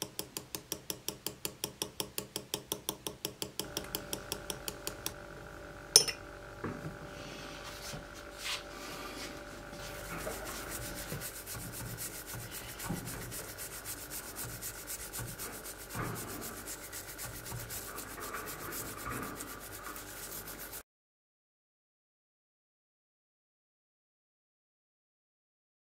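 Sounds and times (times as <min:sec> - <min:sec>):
toothbrush scrubbing metal: 0:09.2 - 0:20.8.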